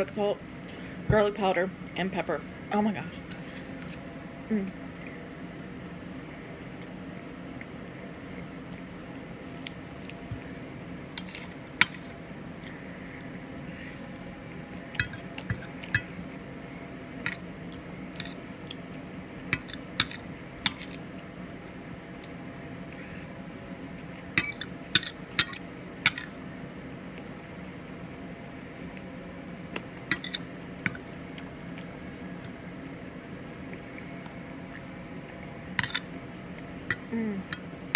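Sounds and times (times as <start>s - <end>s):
steady low hum: 0.0s - 37.9s
fork scraping on plate: 10.3s - 12.2s, 19.5s - 21.0s, 24.4s - 26.4s, 30.1s - 31.0s, 35.8s - 36.1s, 36.9s - 37.7s.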